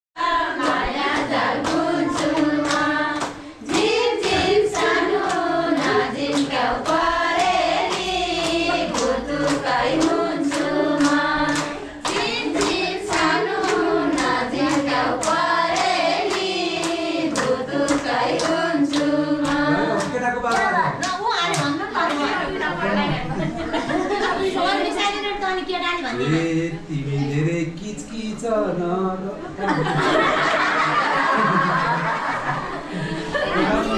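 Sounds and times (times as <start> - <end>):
women singing folk song: 0.2 - 20.0
hand claps: 0.6 - 22.3.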